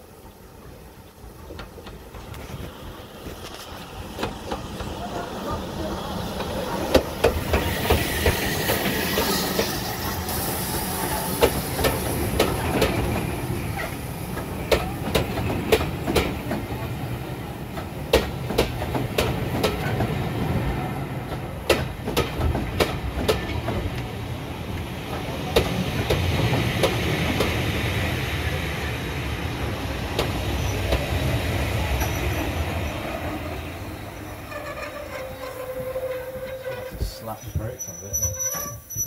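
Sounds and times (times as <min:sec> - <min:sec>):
train rumble: 0:00.0 - 0:39.0
steam hissing: 0:02.2 - 0:15.1.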